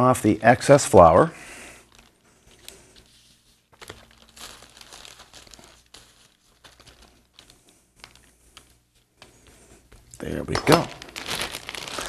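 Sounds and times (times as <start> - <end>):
plastic bag crinkling: 1.1 - 12.0.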